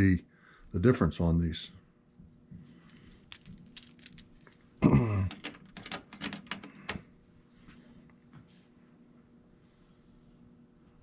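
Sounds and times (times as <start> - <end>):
small parts clicking: 2.9 - 7.0
man clearing throat: 4.8 - 5.3.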